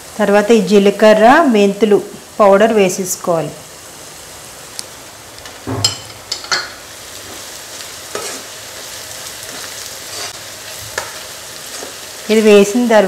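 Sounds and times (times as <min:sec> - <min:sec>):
onion masala sizzling in a pan: 0:00.0 - 0:13.0
spatula knocking and scraping pan: 0:05.7 - 0:07.4, 0:08.1 - 0:08.5.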